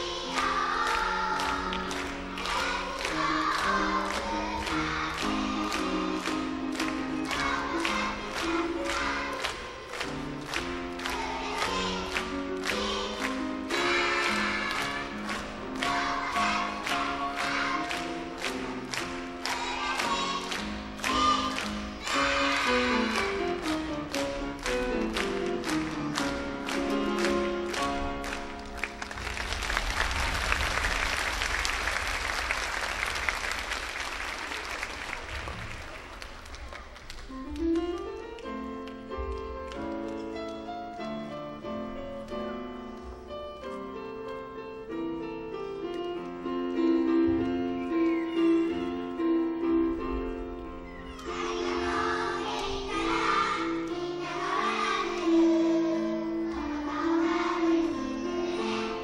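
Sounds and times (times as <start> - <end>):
grand piano playing: 0.0 - 32.5, 37.2 - 59.0
children's choir singing: 0.0 - 37.2, 40.6 - 59.0
audience applause: 24.6 - 37.8.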